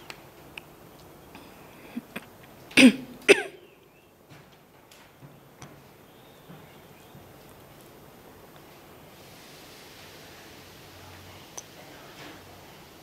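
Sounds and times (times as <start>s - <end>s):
woman coughing: 2.8s - 3.6s.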